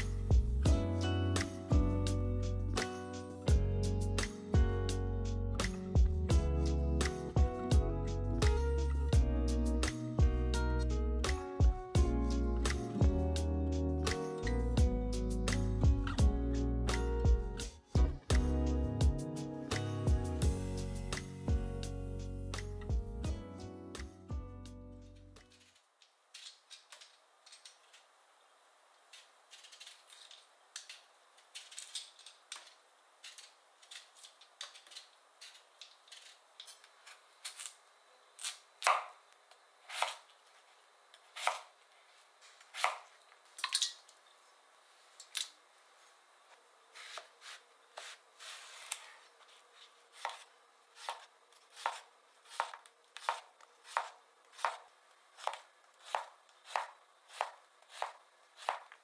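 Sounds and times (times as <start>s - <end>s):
knife chopping on cutting board: 41.4s - 41.7s, 50.2s - 50.4s, 51.0s - 59.0s.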